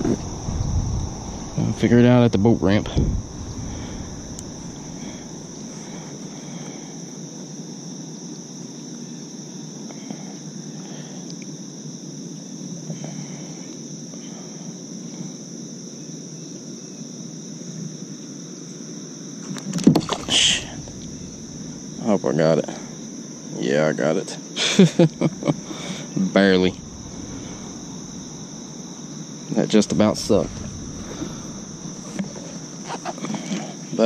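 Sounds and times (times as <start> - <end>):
low rushing noise: 0.0 - 6.6, 20.1 - 23.2, 25.1 - 33.4
insects trilling: 0.0 - 34.0.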